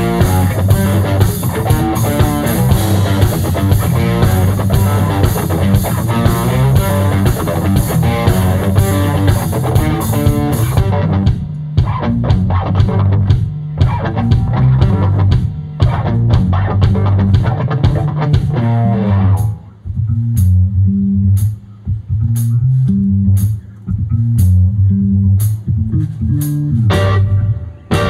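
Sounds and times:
drum hits: 0:00.0 - 0:18.8
electric guitar: 0:00.0 - 0:19.7, 0:25.9 - 0:28.0
bass guitar: 0:00.0 - 0:28.0.

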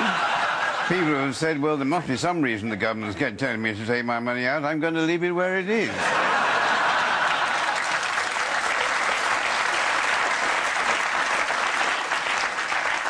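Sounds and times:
audience applauding: 0:06.3 - 0:13.0.

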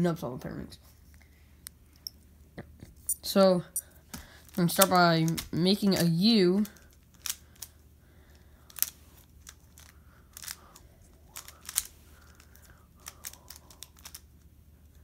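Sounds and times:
plastic puzzle clicking: 0:04.7 - 0:07.7, 0:08.7 - 0:10.6, 0:11.4 - 0:14.2.

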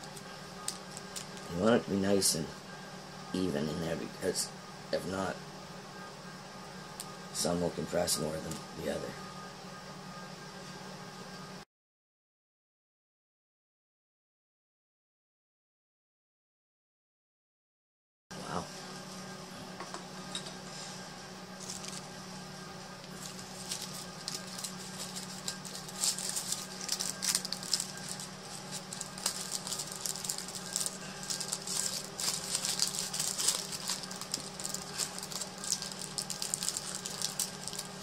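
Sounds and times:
paper crinkling and rustling: 0:00.0 - 0:01.7, 0:21.6 - 0:22.1, 0:23.0 - 0:38.0
steady low hum: 0:00.0 - 0:11.6, 0:18.3 - 0:38.0.

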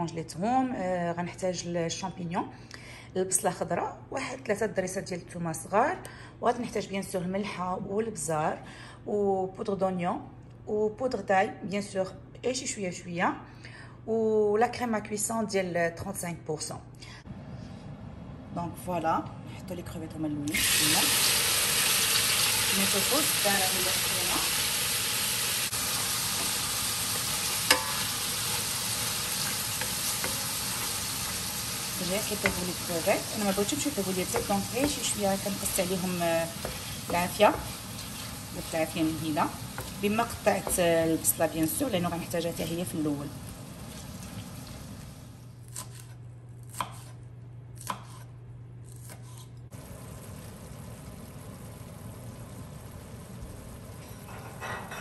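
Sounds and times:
shrimp sizzling in a pan: 0:20.5 - 0:45.3, 0:49.8 - 0:55.0
knife chopping on cutting board: 0:45.7 - 0:47.2, 0:47.8 - 0:48.3.

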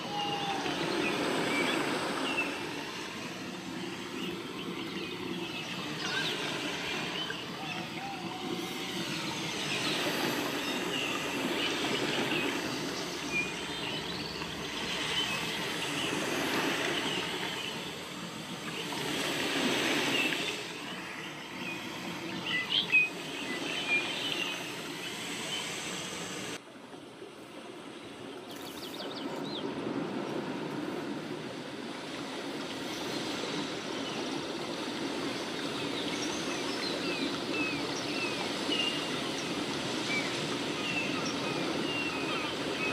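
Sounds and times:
birds chirping: 0:00.0 - 0:26.6.

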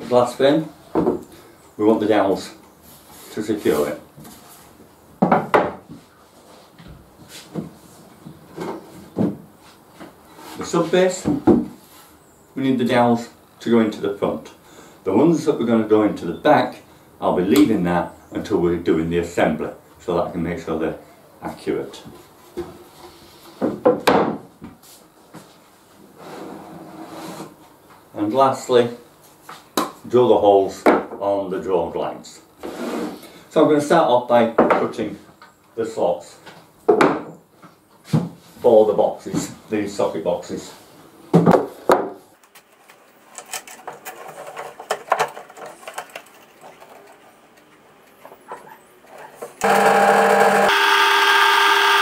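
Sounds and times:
wood rubbing scrape: 0:32.6 - 0:33.2
drill press motor whine: 0:49.6 - 0:52.0.

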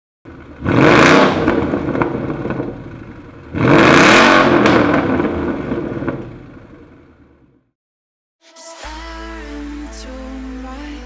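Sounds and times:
engine idle rumble: 0:00.3 - 0:00.7, 0:01.3 - 0:03.6, 0:04.6 - 0:07.7
car engine revving: 0:00.3 - 0:07.6.

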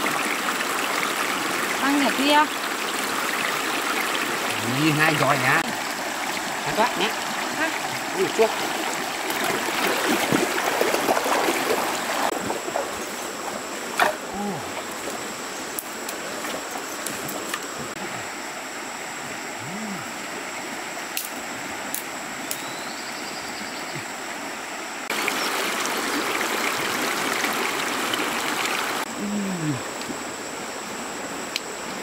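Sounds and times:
river rushing: 0:00.0 - 0:17.2, 0:24.1 - 0:29.1.

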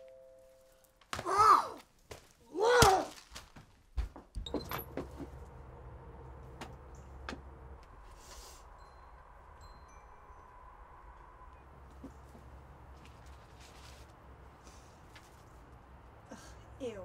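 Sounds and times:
steady low hum: 0:04.4 - 0:17.0.

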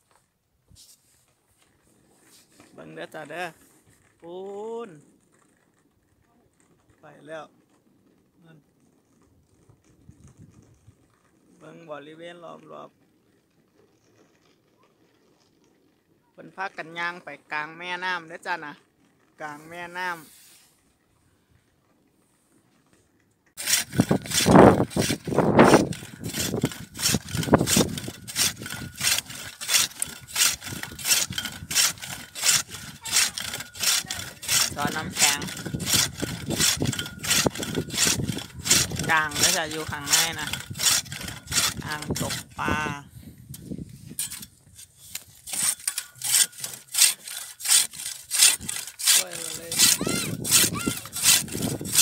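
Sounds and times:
ice auger grinding through ice: 0:01.6 - 0:05.9, 0:23.6 - 0:52.0.

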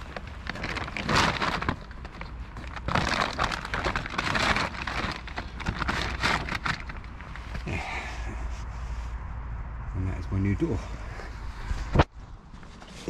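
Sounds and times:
tarp rustling and crinkling: 0:00.0 - 0:09.1.

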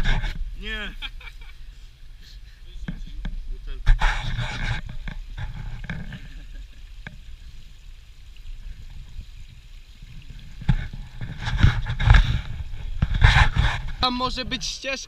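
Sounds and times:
rustling noise: 0:00.0 - 0:02.0, 0:02.8 - 0:06.6, 0:10.2 - 0:14.3.

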